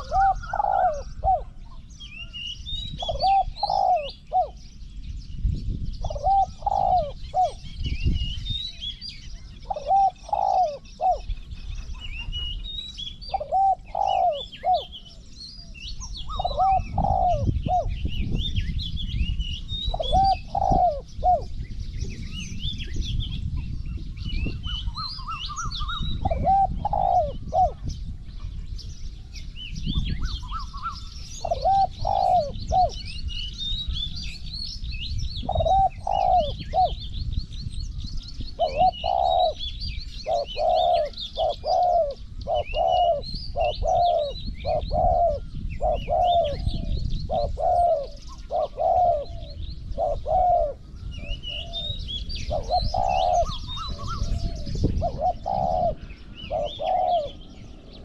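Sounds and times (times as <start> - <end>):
doves cooing: 0.0 - 1.9, 3.0 - 4.6, 6.0 - 7.7, 9.4 - 12.6, 13.2 - 15.3, 16.0 - 18.0, 19.9 - 21.6, 24.5 - 27.9, 30.2 - 33.0, 35.4 - 37.1, 38.5 - 58.0
small birds chirping: 0.0 - 58.0.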